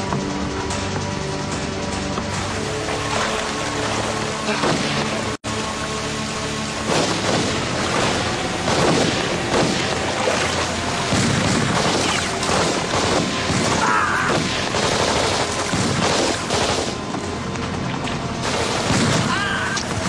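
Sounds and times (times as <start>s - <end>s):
automatic gunfire: 6.9s - 7.6s, 8.6s - 10.0s, 11.1s - 17.0s
explosions: 6.9s - 10.5s, 11.1s - 17.0s, 18.4s - 20.0s.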